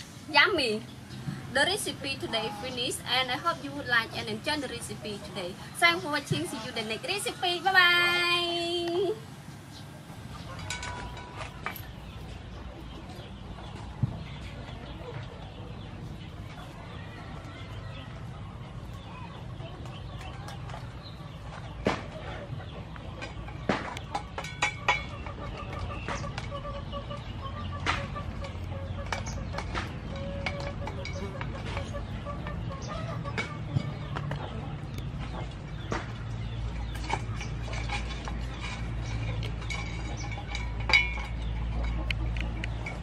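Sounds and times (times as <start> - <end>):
chickens clucking softly: 8.9 - 43.0.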